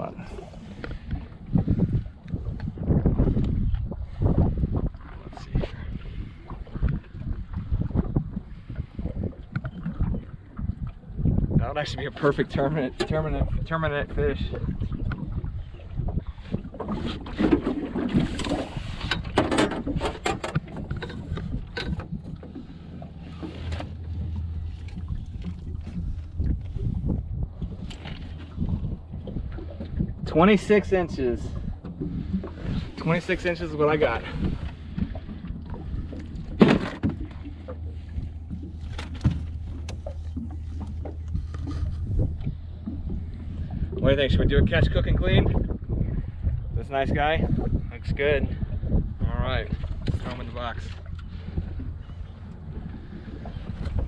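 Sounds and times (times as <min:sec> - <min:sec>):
steady low rumble: 0:00.0 - 0:16.8, 0:18.6 - 0:54.0.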